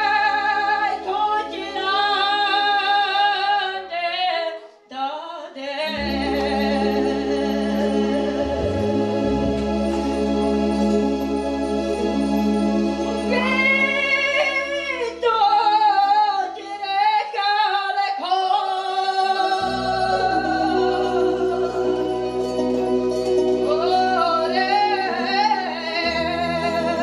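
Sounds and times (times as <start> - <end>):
woman singing with vibrato: 0.0 - 10.4, 13.2 - 27.0
electronic keyboard chords: 6.0 - 14.8.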